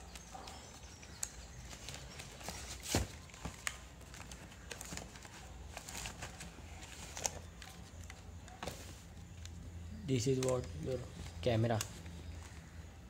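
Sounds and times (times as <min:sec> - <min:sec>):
cardboard packaging rustling: 0:00.0 - 0:09.6.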